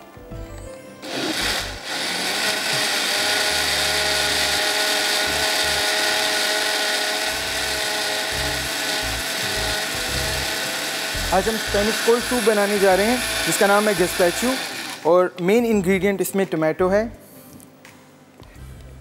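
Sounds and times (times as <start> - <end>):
blender motor running: 1.0 - 15.1.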